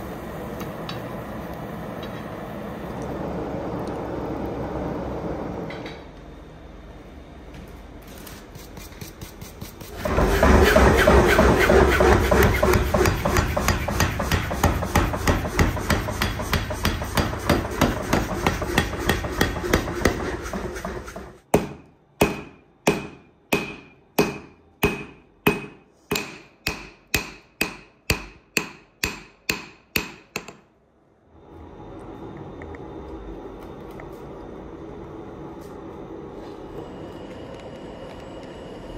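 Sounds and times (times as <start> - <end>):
power hammer pounding steel: 9.9 - 30.6.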